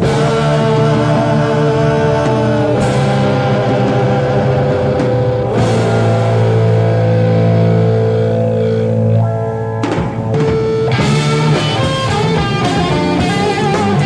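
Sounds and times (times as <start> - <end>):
rock band jamming: 0.0 - 14.0.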